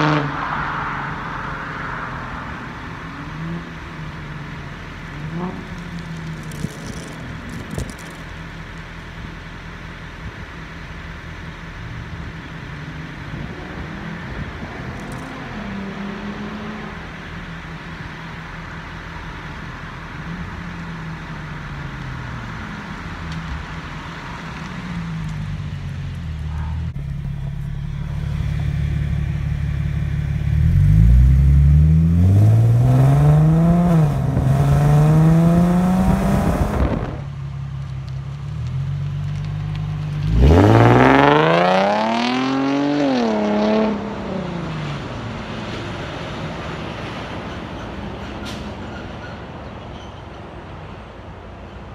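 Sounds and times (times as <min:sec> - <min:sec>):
car engine accelerating hard: 0:26.4 - 0:37.3, 0:39.4 - 0:44.8.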